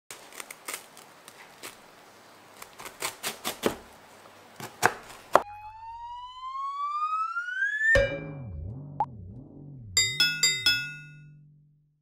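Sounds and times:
knife crunching through toast: 0:00.1 - 0:03.8
rising whistle-like tone: 0:05.5 - 0:09.0.

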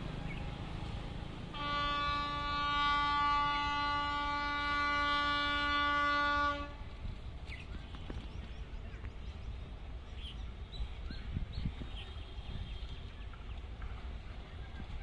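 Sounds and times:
train horn blast: 0:01.5 - 0:06.9.

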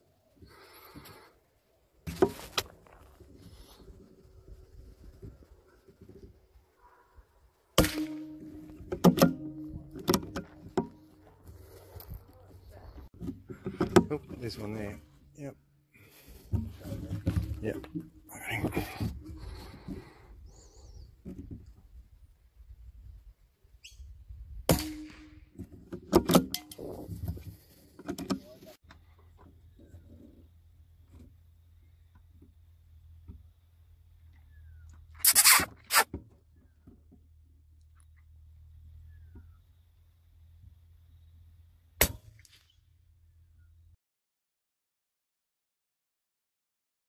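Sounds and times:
bird chirp: 0:20.4 - 0:21.2, 0:38.0 - 0:39.9.

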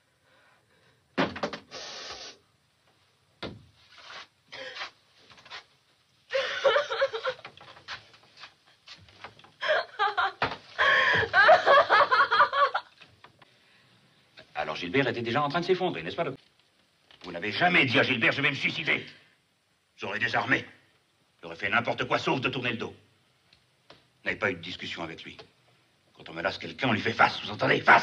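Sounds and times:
woman sobbing and wailing: 0:06.3 - 0:07.5, 0:09.6 - 0:12.9.

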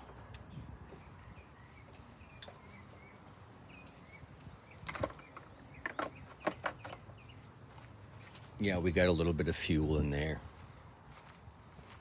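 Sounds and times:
faint bird chirps: 0:00.4 - 0:08.6.

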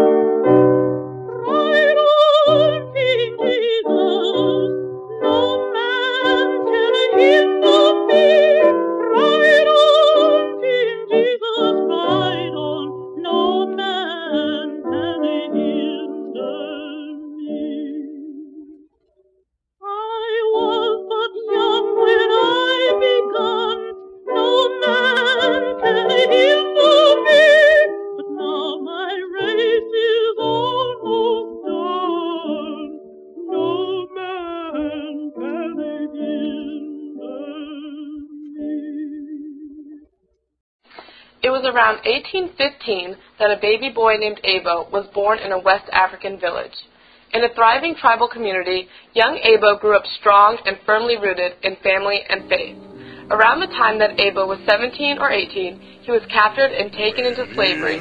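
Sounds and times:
musical accompaniment: 0:52.4 - 0:58.0
person singing wavering notes: 0:52.6 - 0:58.0.

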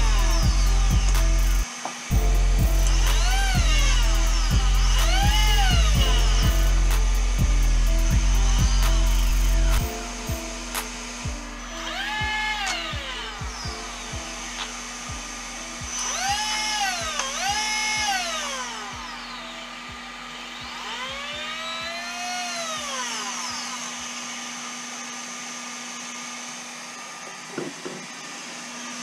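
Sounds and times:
steady hum: 0:00.0 - 0:28.0
electric motor whine: 0:00.0 - 0:29.0.

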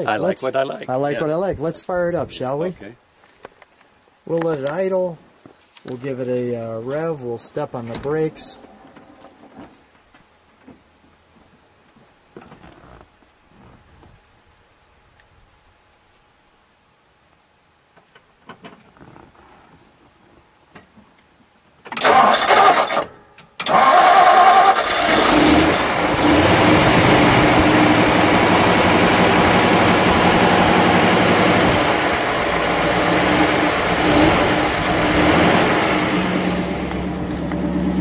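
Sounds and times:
starter motor cranking: 0:22.0 - 0:27.6
car engine idling: 0:24.6 - 0:38.0.

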